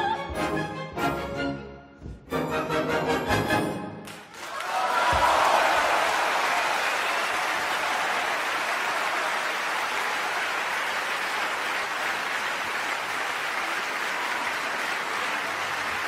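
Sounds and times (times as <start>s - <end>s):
audience applauding: 4.0s - 16.0s.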